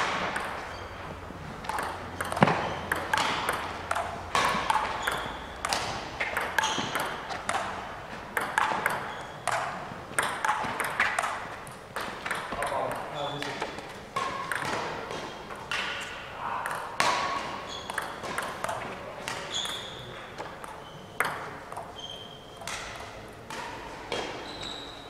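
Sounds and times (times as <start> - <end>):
table tennis ball clicking: 0.3 - 0.6, 1.6 - 7.8, 8.4 - 13.1, 14.5 - 14.8, 17.9 - 21.9.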